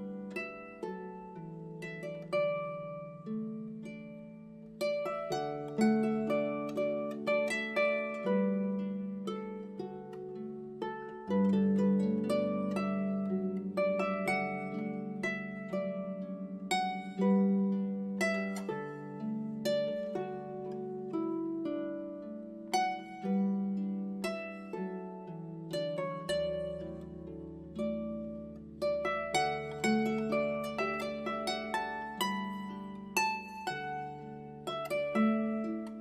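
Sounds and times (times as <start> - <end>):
plucked-string melody: 0.0 - 36.0.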